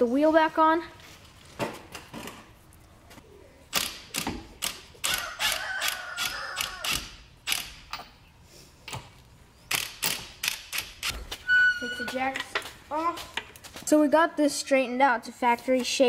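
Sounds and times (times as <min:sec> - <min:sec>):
ratchet wrench clicking: 0:03.8 - 0:07.8, 0:09.7 - 0:11.1.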